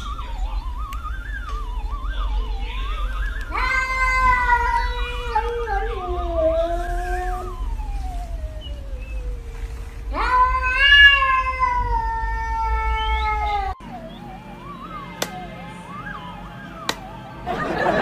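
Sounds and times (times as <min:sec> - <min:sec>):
cat yowling: 0:00.0 - 0:14.0.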